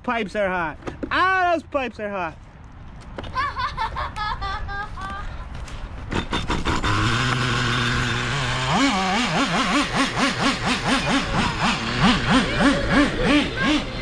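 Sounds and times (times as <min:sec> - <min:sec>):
nitro engine revving: 0:06.1 - 0:14.0.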